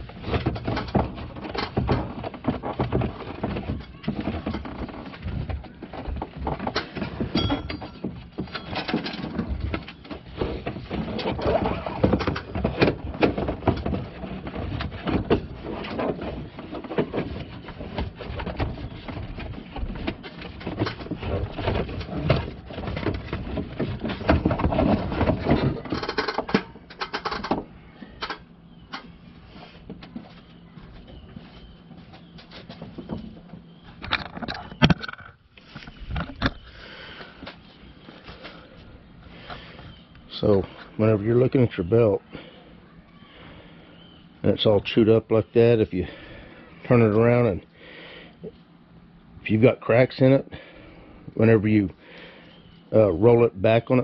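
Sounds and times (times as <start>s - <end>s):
rubber belt rubbing on pulleys: 0.0s - 26.5s.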